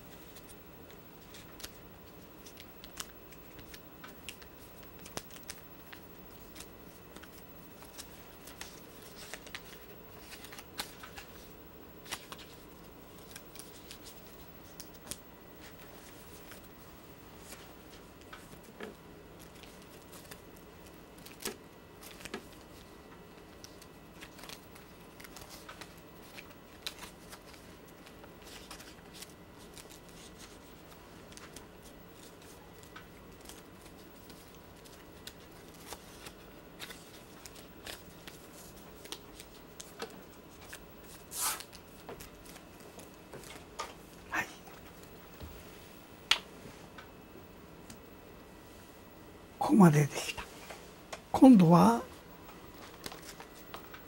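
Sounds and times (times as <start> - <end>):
faint steady hum: 0.0 - 54.0
paper being folded and creased: 1.2 - 16.8, 17.4 - 22.9, 23.5 - 31.6, 32.2 - 43.7.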